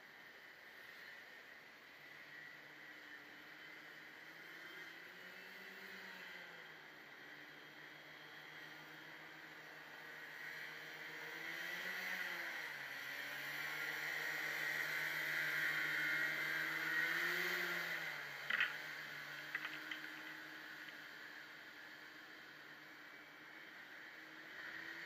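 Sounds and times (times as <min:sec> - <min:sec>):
distant hovercraft engine: 0:18.2 - 0:21.5
sharp clicks: 0:18.5 - 0:18.8, 0:19.5 - 0:21.0.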